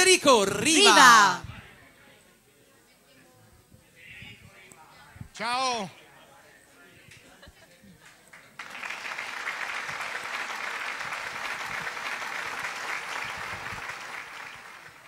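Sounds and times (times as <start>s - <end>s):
audience applauding: 8.3s - 15.0s.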